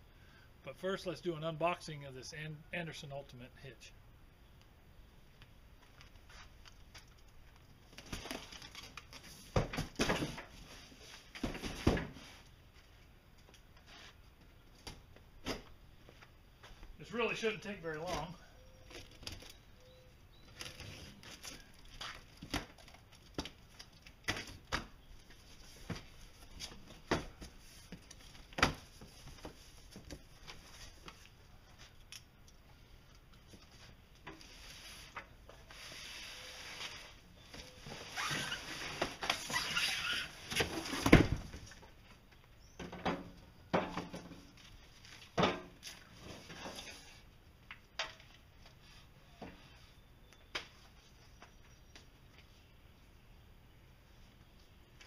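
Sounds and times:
packing paper rustling: 0:06.0 - 0:09.4.

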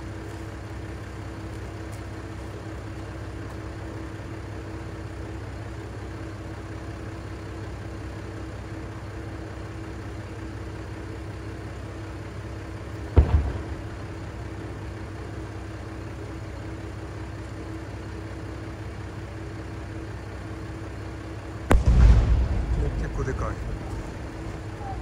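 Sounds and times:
diesel engine idling: 0:00.0 - 0:25.0
loud firework boom: 0:13.1 - 0:14.5, 0:21.7 - 0:25.0
firework bang: 0:13.1 - 0:14.6, 0:21.7 - 0:25.0.

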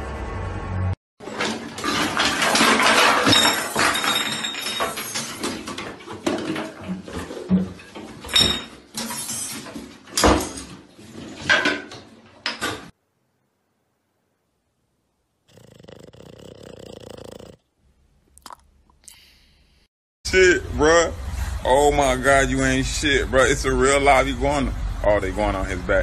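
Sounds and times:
bottles clattering and clinking: 0:01.2 - 0:12.9.

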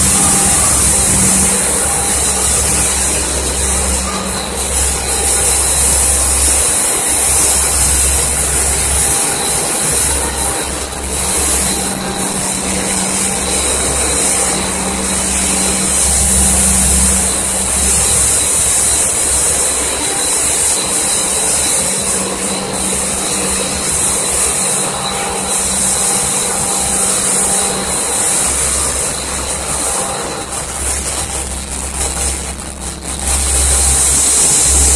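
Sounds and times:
loud steady machine hiss: 0:00.0 - 0:34.9
low machine hum: 0:00.0 - 0:34.9.

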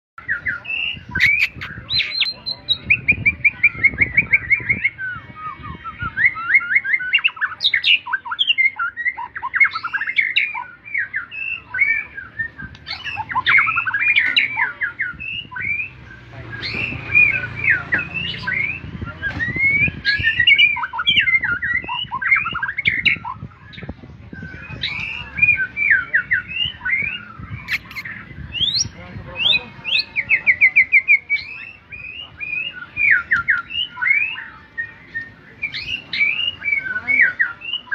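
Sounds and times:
songbird singing: 0:00.2 - 0:37.9.

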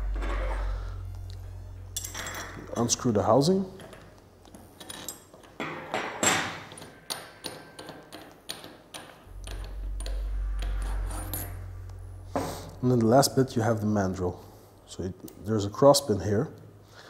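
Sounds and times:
low steady hum: 0:00.0 - 0:05.2, 0:09.2 - 0:15.1
metal parts clicking and knocking: 0:03.8 - 0:09.7.

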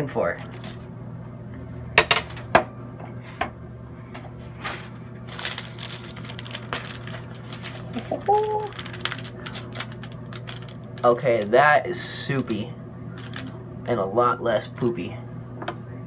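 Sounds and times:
steady low hum: 0:00.0 - 0:16.0
parchment paper rustling: 0:04.5 - 0:11.6, 0:13.2 - 0:13.5.

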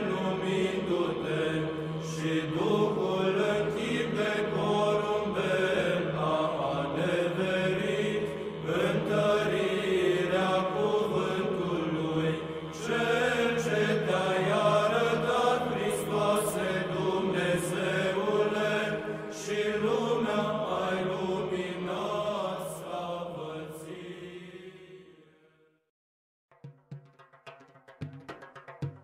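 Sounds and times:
chanted singing: 0:00.0 - 0:25.3.

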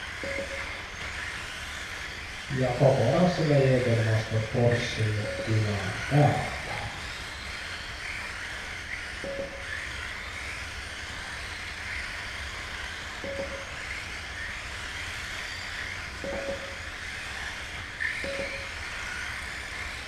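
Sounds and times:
toy car motors whining: 0:00.0 - 0:20.0
short beeps: 0:00.2 - 0:00.8, 0:05.2 - 0:05.5, 0:09.2 - 0:09.8, 0:13.2 - 0:13.8, 0:16.2 - 0:16.8, 0:18.2 - 0:18.7.

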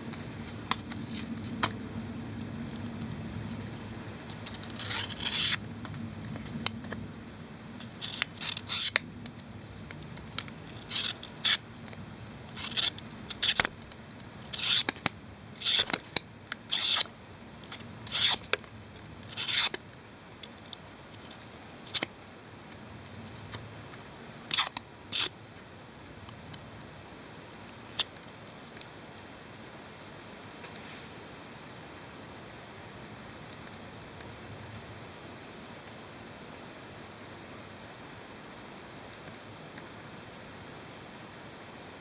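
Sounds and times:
knife slicing paper: 0:04.5 - 0:05.6, 0:14.5 - 0:15.0, 0:18.1 - 0:18.4, 0:19.3 - 0:19.8.

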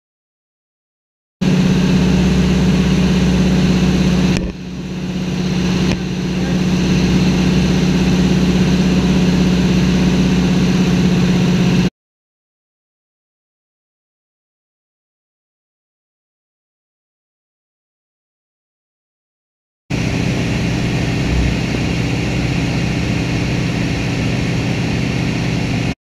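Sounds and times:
plane engine and propeller: 0:01.4 - 0:11.9, 0:19.9 - 0:26.0.

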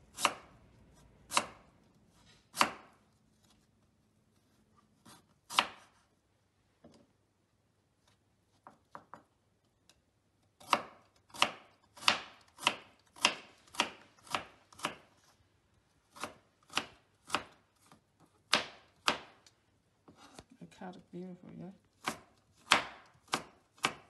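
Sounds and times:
knife chopping on wooden board: 0:00.1 - 0:00.5, 0:01.3 - 0:01.7, 0:02.5 - 0:03.0, 0:05.0 - 0:06.0, 0:10.6 - 0:15.1, 0:16.1 - 0:19.4, 0:22.0 - 0:24.0.

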